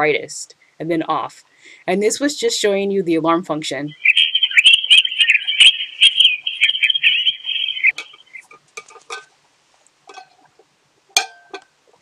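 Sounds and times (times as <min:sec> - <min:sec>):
warbling electronic alarm chirp: 0:03.9 - 0:08.5.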